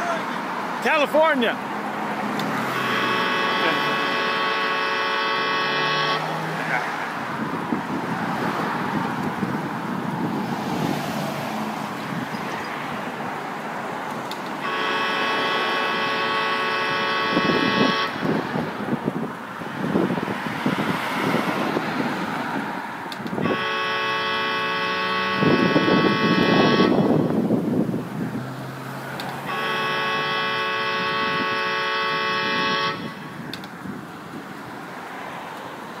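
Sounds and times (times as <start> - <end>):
traffic rumble: 0.0 - 36.0
vehicle horn blasts: 2.5 - 6.8, 14.6 - 19.0, 23.3 - 27.4, 29.4 - 33.5.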